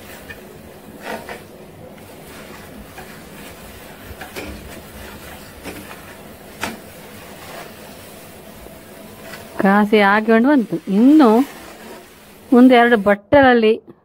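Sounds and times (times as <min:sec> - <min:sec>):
spatula scraping metal pan: 0:00.0 - 0:08.3, 0:09.1 - 0:12.9.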